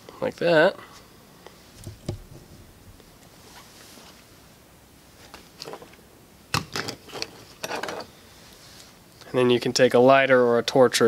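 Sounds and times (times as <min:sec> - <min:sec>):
faint rustles and clicks: 0:00.9 - 0:06.0, 0:06.8 - 0:09.4.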